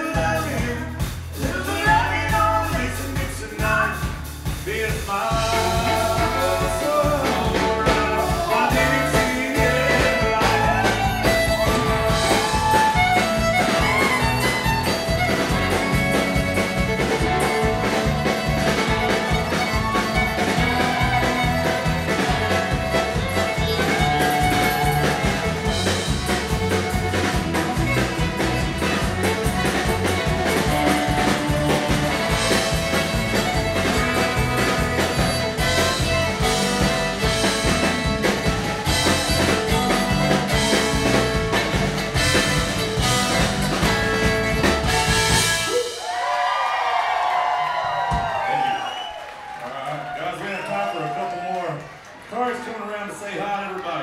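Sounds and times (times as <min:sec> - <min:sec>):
electric bass guitar: 0:00.0 - 0:46.0
steady drum beat: 0:00.0 - 0:46.3, 0:47.8 - 0:48.8
fiddle: 0:05.3 - 0:45.8.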